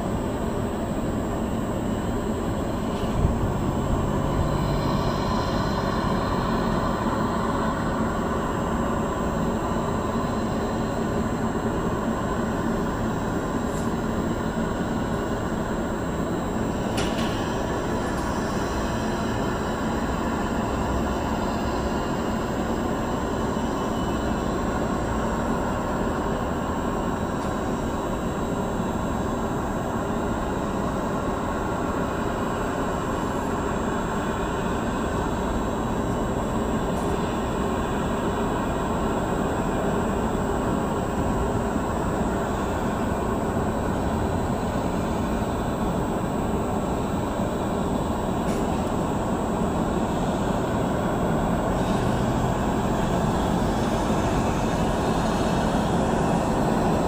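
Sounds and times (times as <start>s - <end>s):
jet aircraft rumble: 0.0s - 22.1s
high steady whine: 0.0s - 57.0s.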